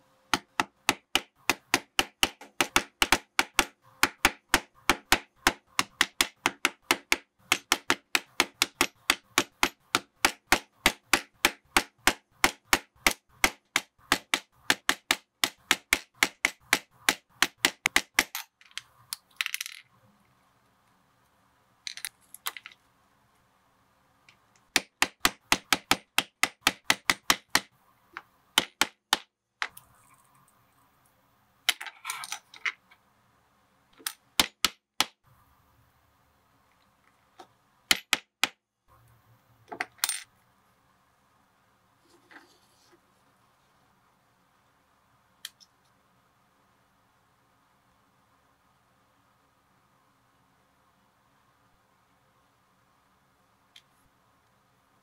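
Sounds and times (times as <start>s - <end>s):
mallet striking punching tool: 0.3s - 18.4s.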